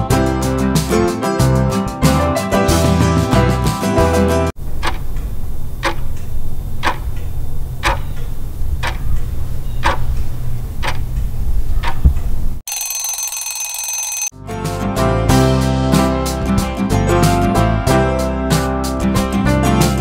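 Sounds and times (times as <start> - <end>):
steady low hum: 4.6 - 12.6
clock ticking: 4.7 - 9.2, 9.8 - 10.1, 10.8 - 11.0
alarm clock ringing: 12.7 - 14.3.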